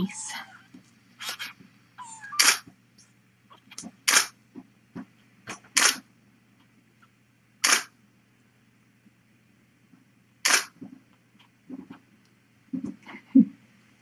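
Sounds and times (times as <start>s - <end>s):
loud sharp clicks: 4.1s - 4.4s, 5.5s - 6.0s, 7.6s - 7.9s, 10.4s - 10.8s.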